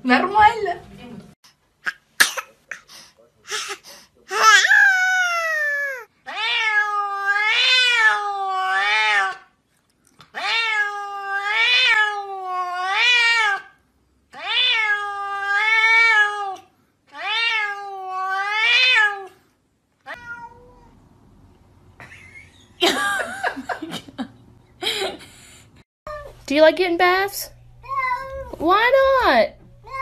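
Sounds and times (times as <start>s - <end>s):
cat meowing: 4.3s - 9.4s, 10.3s - 13.7s, 14.4s - 19.3s, 20.1s - 21.0s, 27.8s - 28.6s.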